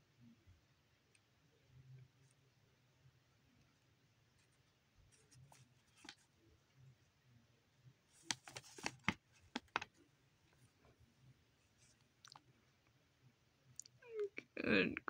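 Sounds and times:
paper crinkling: 0:08.1 - 0:09.9
paper sheet rustling: 0:08.2 - 0:09.9.

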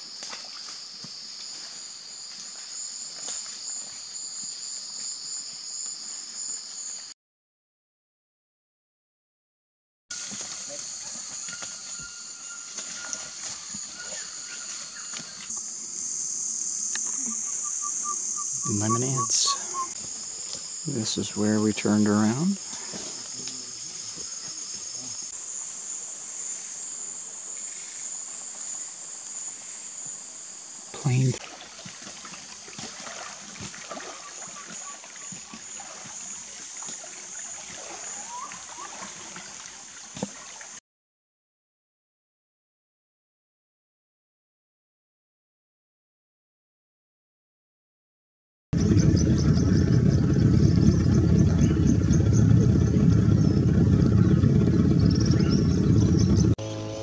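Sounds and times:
insect chorus drone: 0:00.0 - 0:07.2, 0:10.1 - 0:40.8, 0:48.8 - 0:57.0
short bird calls: 0:17.0 - 0:20.0
soft water sounds: 0:30.9 - 0:40.8.

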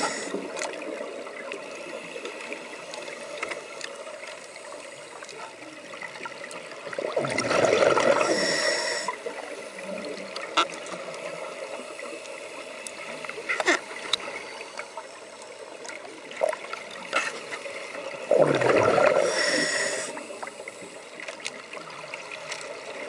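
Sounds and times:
diver breathing through regulator: 0:00.0 - 0:00.4, 0:08.1 - 0:09.3, 0:18.9 - 0:21.1
underwater hiss and crackle: 0:00.0 - 0:23.0
exhaled bubbles burst: 0:07.0 - 0:08.4, 0:18.3 - 0:19.4.

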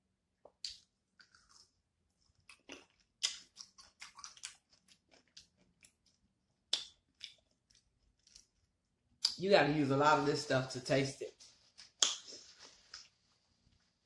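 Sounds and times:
chewing crunchy cucumber: 0:00.5 - 0:08.6.

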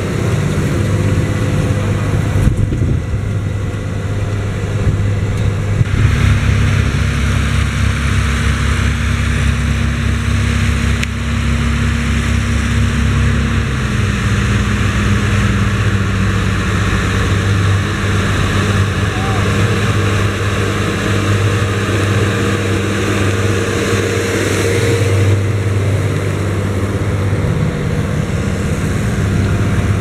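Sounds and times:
tractor diesel engine under load: 0:00.0 - 0:30.0.

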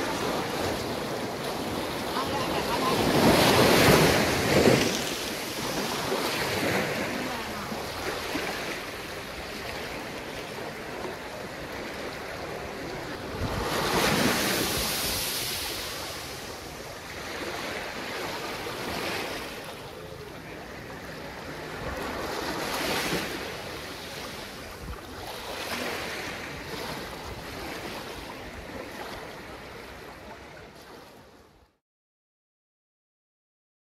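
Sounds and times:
surf breaking on sandy beach: 0:00.0 - 0:19.9.

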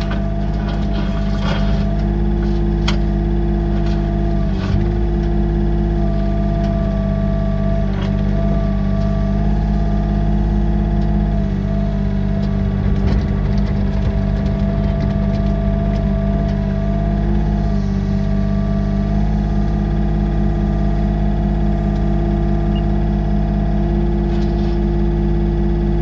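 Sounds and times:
hydraulic whine: 0:00.0 - 0:23.3
excavator diesel engine running: 0:00.0 - 0:26.0.

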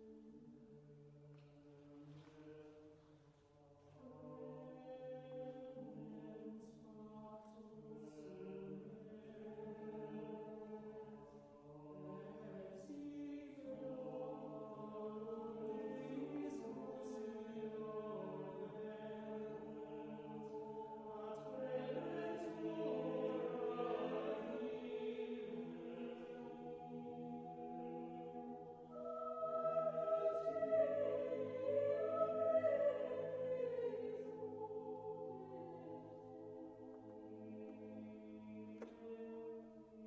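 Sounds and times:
choir singing long notes: 0:03.8 - 0:40.0.

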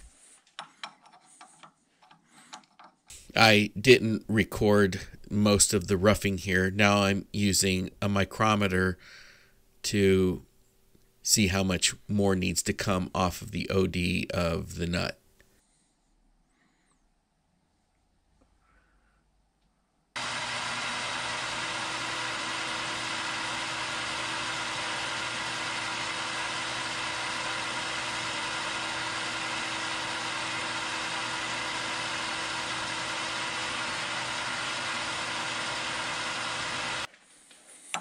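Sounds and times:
metal lathe cutting: 0:20.2 - 0:37.1.

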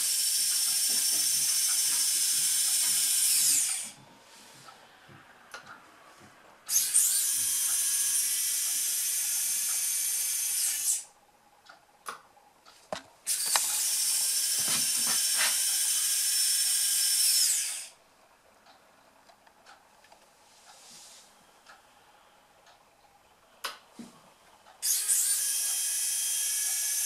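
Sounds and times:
landing gear motor whine: 0:00.0 - 0:04.1, 0:06.6 - 0:11.1, 0:13.3 - 0:17.9, 0:24.8 - 0:27.0.

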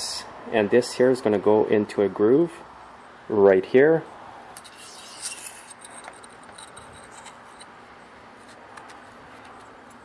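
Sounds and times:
metal plate scraping: 0:04.6 - 0:07.8.

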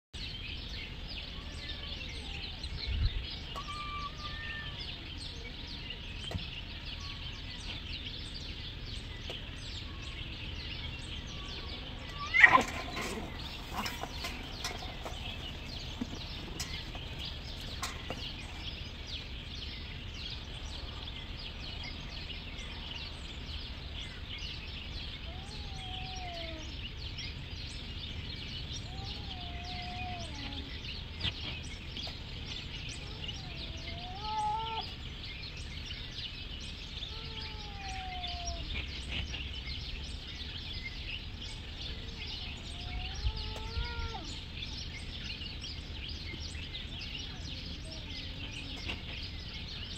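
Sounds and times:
cats yowling: 0:03.5 - 0:05.0, 0:11.3 - 0:15.6, 0:25.2 - 0:26.8, 0:28.8 - 0:30.8, 0:33.0 - 0:35.0, 0:37.0 - 0:38.9, 0:42.2 - 0:44.4
cat screeching: 0:03.6 - 0:04.8, 0:11.6 - 0:13.9, 0:25.3 - 0:26.7, 0:33.3 - 0:34.9, 0:37.1 - 0:38.7, 0:42.8 - 0:44.3.

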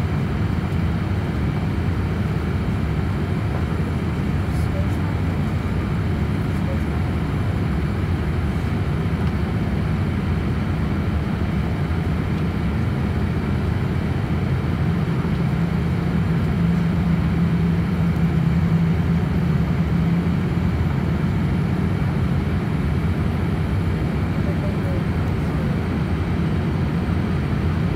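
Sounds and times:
aircraft engines roaring: 0:00.0 - 0:27.9
low cabin hum: 0:00.0 - 0:27.9.

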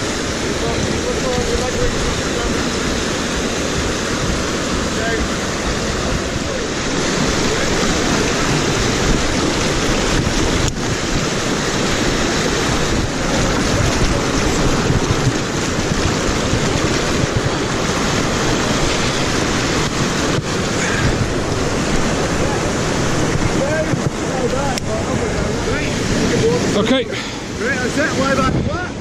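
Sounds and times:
rushing whitewater: 0:00.0 - 0:29.0.

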